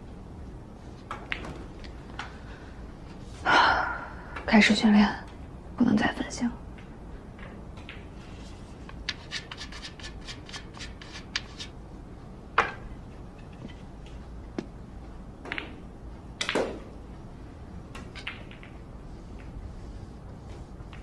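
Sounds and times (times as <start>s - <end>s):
billiard balls clacking: 1.0s - 2.4s, 6.7s - 17.1s, 17.8s - 19.6s
cue tip chalk rubbing: 8.2s - 11.8s.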